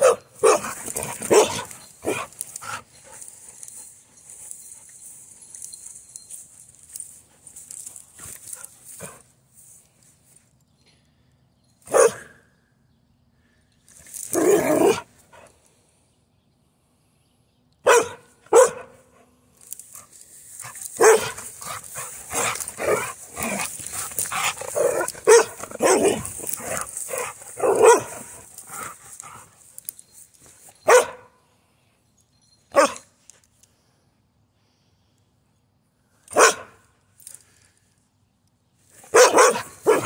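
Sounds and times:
dog barking: 0.0s - 2.3s, 11.9s - 12.3s, 17.8s - 19.0s, 21.0s - 21.4s, 24.8s - 26.3s, 27.6s - 28.2s, 30.8s - 31.3s, 32.8s - 33.0s, 36.3s - 36.8s, 39.1s - 40.0s.

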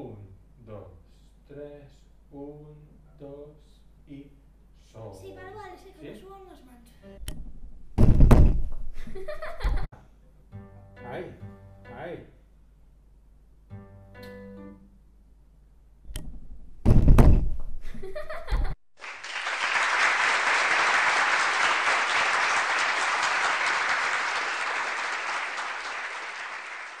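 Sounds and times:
loud thumps and knocks: 7.4s - 8.9s, 16.3s - 17.8s
applause: 19.0s - 27.0s.

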